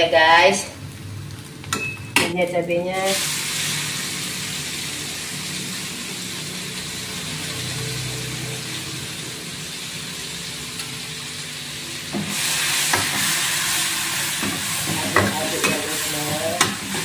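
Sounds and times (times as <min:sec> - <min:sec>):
paste sizzling in hot oil: 0:03.0 - 0:17.0
spatula scraping wok: 0:12.1 - 0:17.0.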